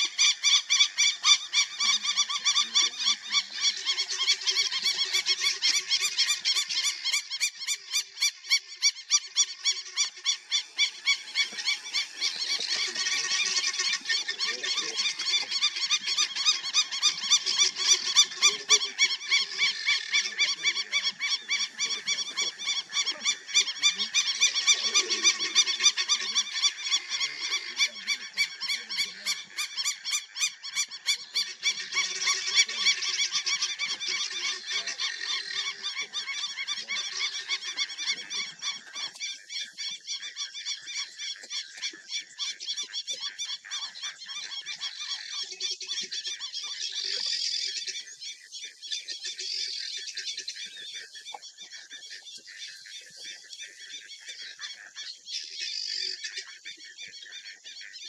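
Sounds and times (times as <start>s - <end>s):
small animals calling in fast pulse: 0.0s - 55.0s
lower irregular animal calls: 0.0s - 57.8s.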